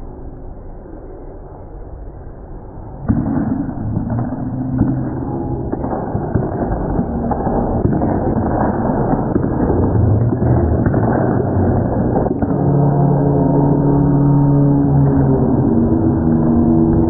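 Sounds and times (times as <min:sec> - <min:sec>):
indistinct crowd noise: 0:00.0 - 0:17.0
steady held tones: 0:03.7 - 0:17.0.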